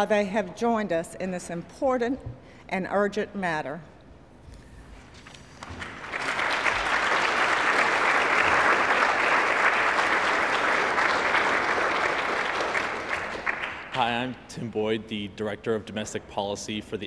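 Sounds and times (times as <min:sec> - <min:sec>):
audience applauding: 0:05.6 - 0:14.3.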